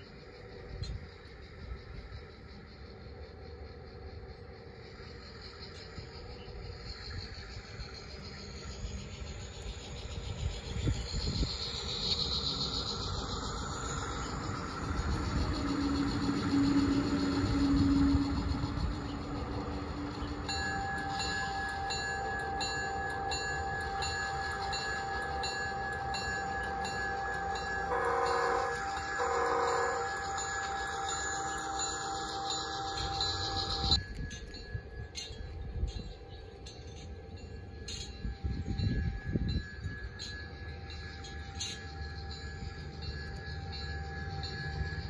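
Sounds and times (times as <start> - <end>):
model train motor and wheels rumbling: 0.0 - 45.0
locomotive bell ringing: 8.4 - 45.0
short horn blasts: 27.9 - 30.1.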